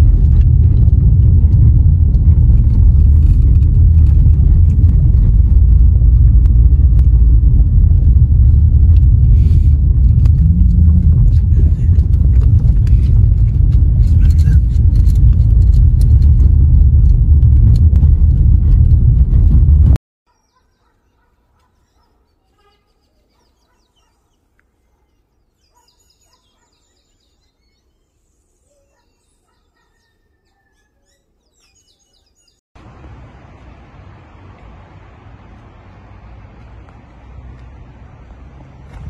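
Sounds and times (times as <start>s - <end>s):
car driving low rumble: 0.0s - 20.0s, 32.8s - 39.0s
steady rushing noise: 0.0s - 20.0s.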